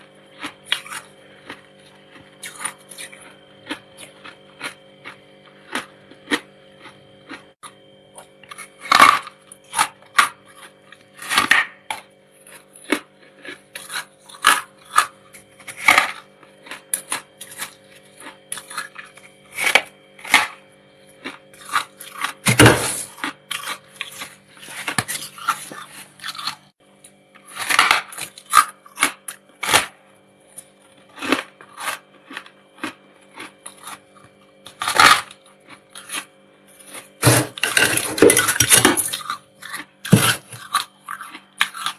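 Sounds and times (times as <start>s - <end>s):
frost crunching in mouth: 0.3s - 26.7s, 30.6s - 41.9s.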